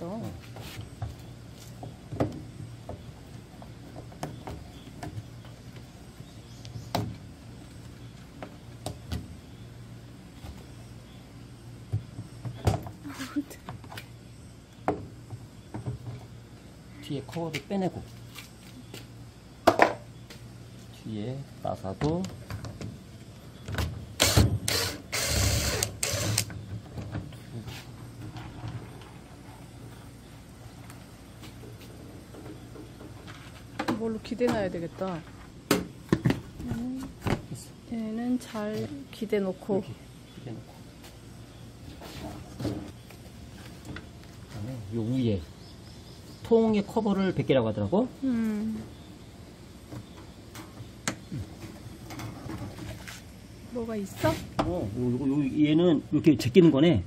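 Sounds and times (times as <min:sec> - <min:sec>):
impact driver running: 0:24.2 - 0:26.5.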